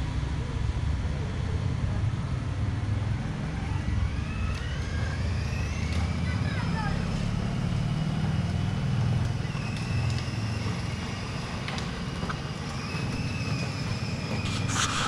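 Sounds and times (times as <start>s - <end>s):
toy car electric motor whir: 3.5s - 15.0s
short burst of noise: 14.3s - 15.0s.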